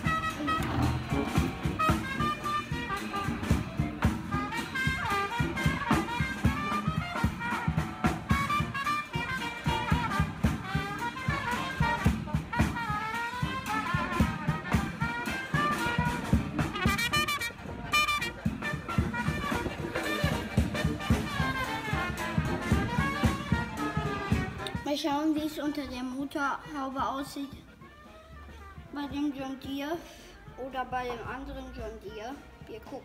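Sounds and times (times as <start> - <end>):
upbeat jazz with brass melody: 0.0 - 25.1.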